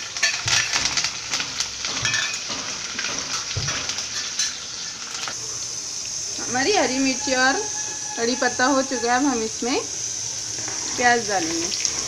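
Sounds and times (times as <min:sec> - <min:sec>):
spices sizzling in hot oil: 0:00.0 - 0:12.0
utensils knocking against pan: 0:00.2 - 0:04.6.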